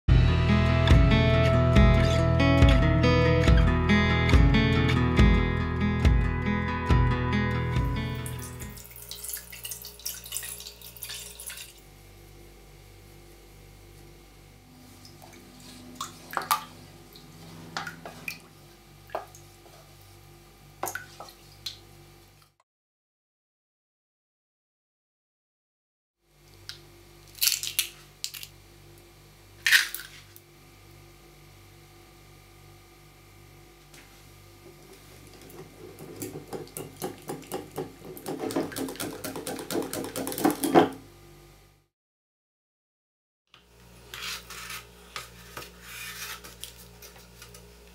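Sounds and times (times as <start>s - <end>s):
water splashing in pot: 8.4s - 11.8s.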